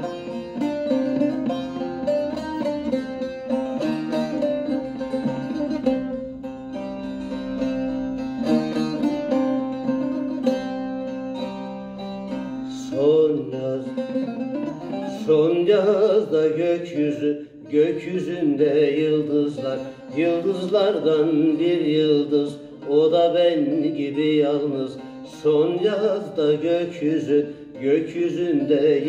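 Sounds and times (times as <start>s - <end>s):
plucked long-necked lute: 0.0s - 29.0s
man singing: 12.4s - 29.0s.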